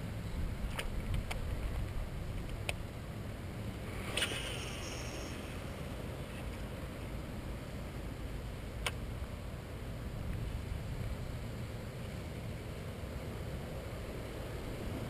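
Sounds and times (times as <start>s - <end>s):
low wind rumble on microphone: 0.0s - 4.2s, 5.4s - 15.0s
sharp click: 4.1s - 4.6s.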